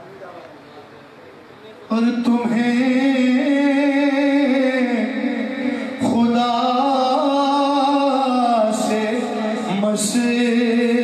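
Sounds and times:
man singing unaccompanied: 1.9 - 11.0.

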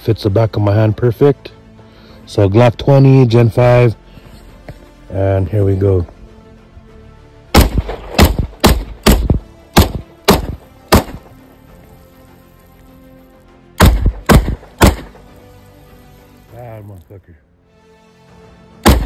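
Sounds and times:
pistol shots: 7.5 - 11.3, 13.8 - 15.3.

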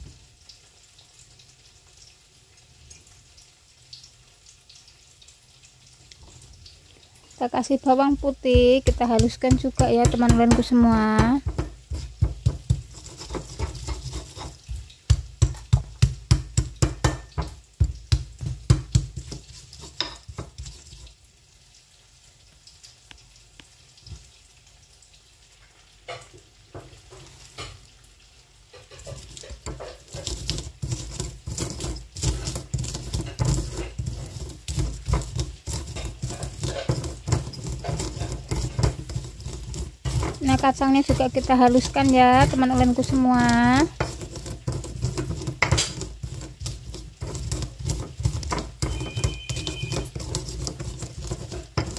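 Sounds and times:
stone pestle pounding in mortar: 8.1 - 20.9, 29.0 - 51.9.

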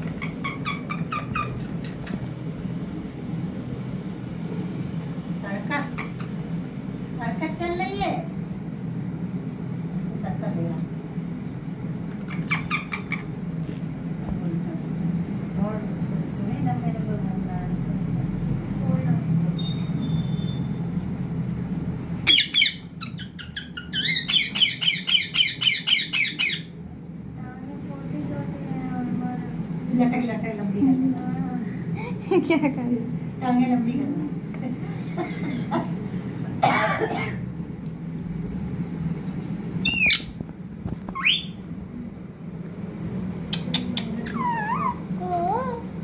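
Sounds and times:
parakeet squawking: 0.0 - 2.3, 5.8 - 6.4, 12.1 - 13.4, 22.2 - 26.8, 39.8 - 40.4, 41.1 - 41.6, 43.5 - 45.1
low steady hum: 0.0 - 46.0.

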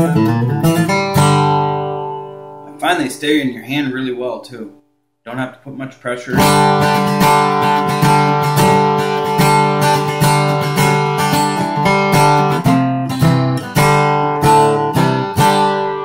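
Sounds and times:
acoustic guitar strummed with a pick: 0.0 - 2.7, 6.3 - 16.0.

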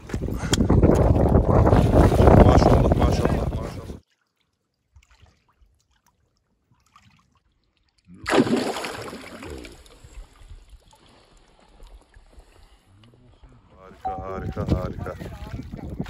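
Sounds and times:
water trickling and lapping: 0.0 - 16.0
fish splashing in water: 4.1 - 12.6.

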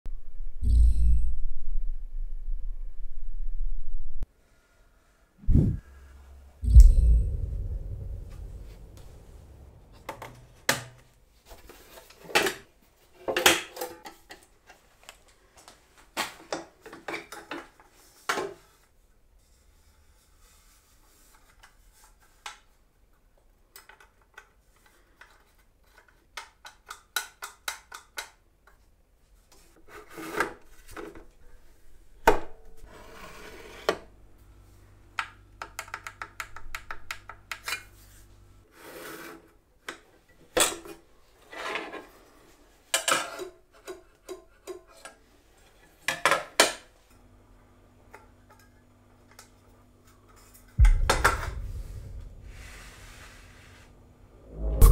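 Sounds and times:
low steady hum: 0.1 - 4.2, 5.4 - 10.6, 50.8 - 54.9.

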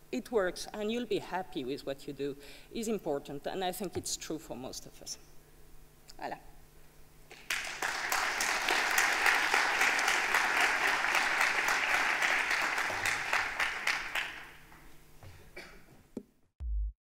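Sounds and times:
audience applauding: 7.3 - 14.7.

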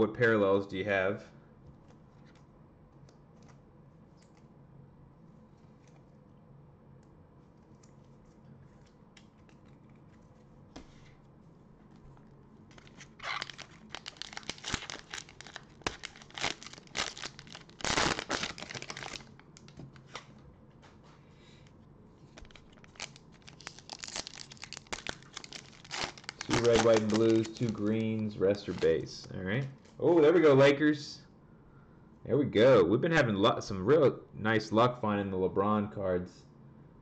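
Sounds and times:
foil card pack tearing and crinkling: 12.7 - 20.3, 22.4 - 29.1.

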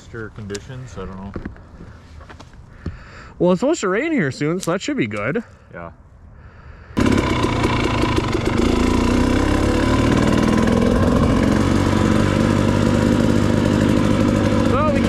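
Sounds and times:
two-stroke dirt bike engine: 7.0 - 15.0.

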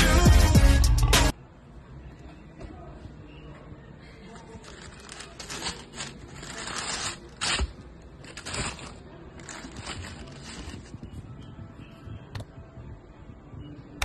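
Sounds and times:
tissue paper rustling: 4.4 - 11.0.

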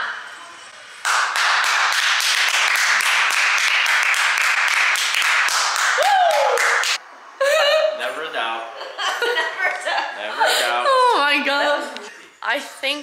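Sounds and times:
people clapping fast: 1.0 - 7.0.

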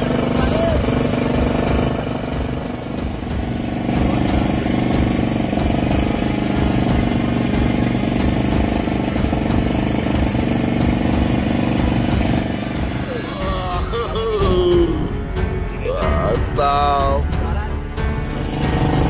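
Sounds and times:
engine running steadily: 0.0 - 19.0.

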